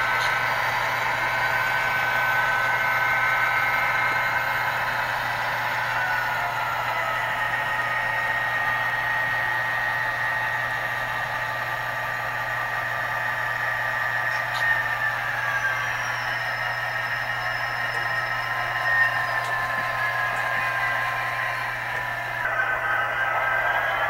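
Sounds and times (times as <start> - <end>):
diesel engine sound from small speaker: 0.0 - 24.0
model train wheels and motor whirring: 0.0 - 24.0.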